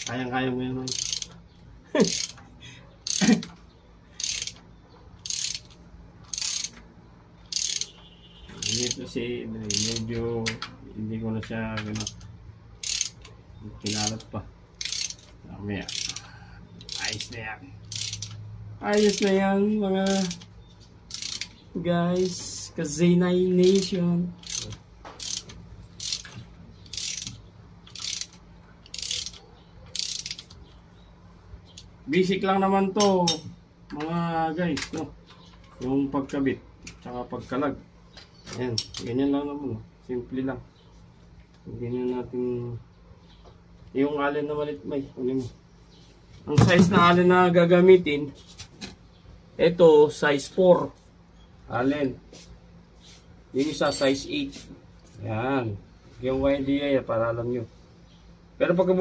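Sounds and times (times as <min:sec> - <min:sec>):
ratchet wrench clicking: 0:00.8 - 0:01.4, 0:02.0 - 0:02.4, 0:03.0 - 0:03.5, 0:04.2 - 0:04.6, 0:05.2 - 0:06.8, 0:07.4 - 0:10.6, 0:11.9 - 0:19.4, 0:20.0 - 0:20.5, 0:21.1 - 0:21.6, 0:22.2 - 0:22.5, 0:23.5 - 0:30.6, 0:53.8 - 0:54.2.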